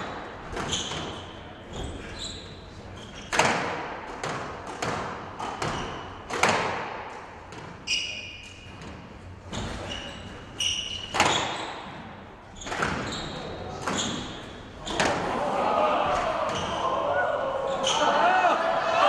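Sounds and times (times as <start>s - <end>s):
shoes squeaking on court floor: 0.0s - 3.4s, 5.4s - 6.3s, 7.5s - 15.2s
squash ball hits: 3.3s - 7.8s, 11.0s - 13.1s.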